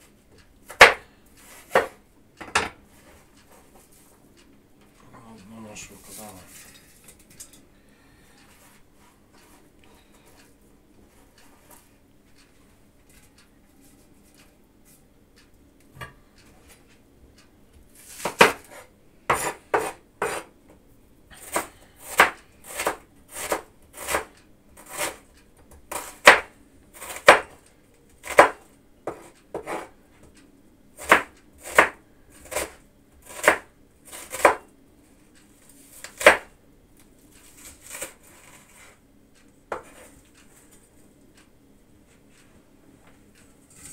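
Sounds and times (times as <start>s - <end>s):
knife striking cutting board: 0.7s - 1.0s, 1.7s - 2.7s, 19.3s - 20.5s.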